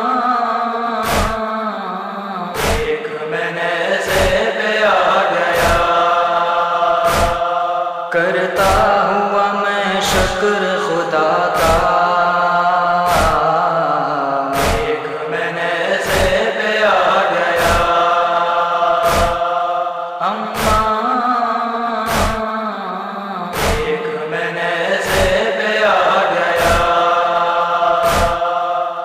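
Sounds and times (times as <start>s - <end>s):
male chorus chanting drone: 0.0s - 29.0s
deep rhythmic chest thumps: 2.6s - 3.0s, 5.6s - 6.0s, 7.0s - 7.5s, 13.1s - 13.5s, 14.6s - 15.0s, 17.6s - 18.0s, 18.9s - 19.5s, 22.1s - 22.4s, 23.6s - 24.0s, 27.9s - 28.5s.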